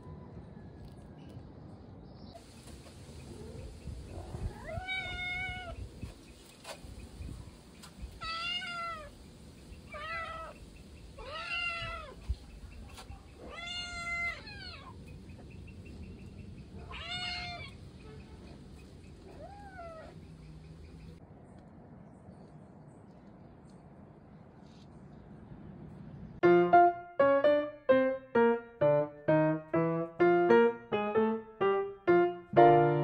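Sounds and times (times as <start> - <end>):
cat meowing: 4.5 - 5.8, 8.2 - 9.2, 9.9 - 10.6, 11.2 - 12.2, 13.4 - 15.0, 16.8 - 17.8, 19.2 - 20.2.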